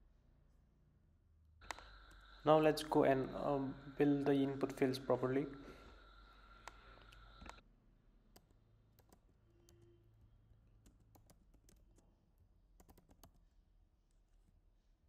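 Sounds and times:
faint keyboard typing: 0:08.3 - 0:10.0, 0:10.8 - 0:14.5.

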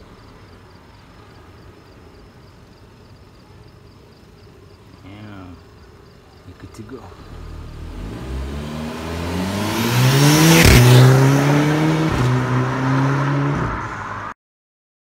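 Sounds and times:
car accelerating past: 0:07.1 - 0:14.4.

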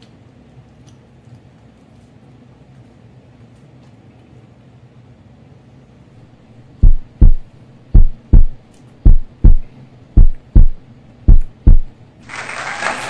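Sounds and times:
heartbeat thumps: 0:06.8 - 0:12.0.

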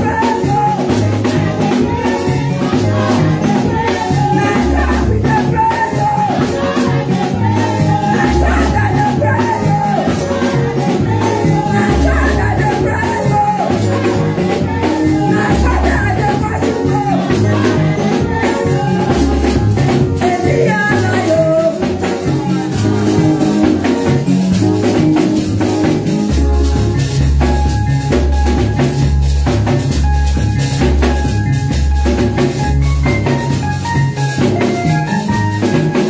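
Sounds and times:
drum kit: 0:00.0 - 0:36.0
woman singing into a microphone: 0:01.7 - 0:22.5.

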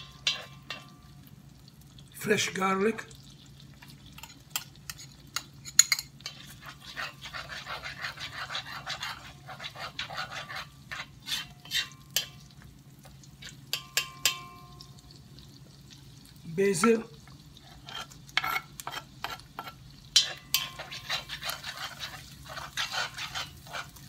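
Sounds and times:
metal spoon scraping a wok: 0:00.0 - 0:00.9, 0:04.2 - 0:12.5, 0:17.7 - 0:24.0
food sizzling in oil: 0:00.0 - 0:24.0
spoon knocking against wok: 0:13.7 - 0:14.8, 0:20.2 - 0:21.0.

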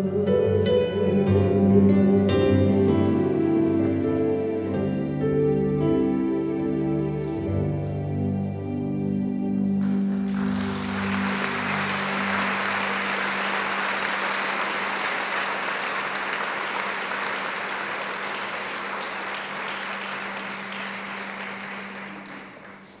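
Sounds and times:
voice and piano song: 0:00.0 - 0:23.0
audience applauding: 0:09.8 - 0:23.0.

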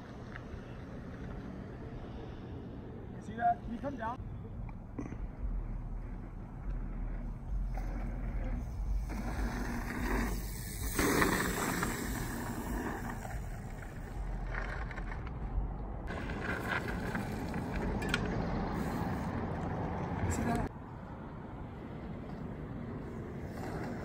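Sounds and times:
bicycle tyres rolling on dirt: 0:05.5 - 0:20.7, 0:22.0 - 0:24.0.

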